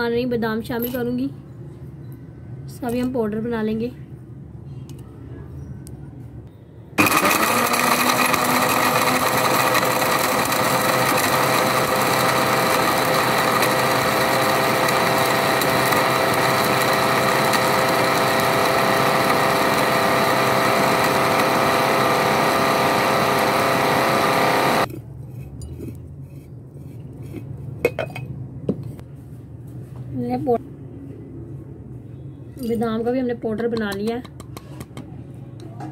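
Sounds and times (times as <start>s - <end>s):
mixer grinder motor whine: 7.0s - 24.9s.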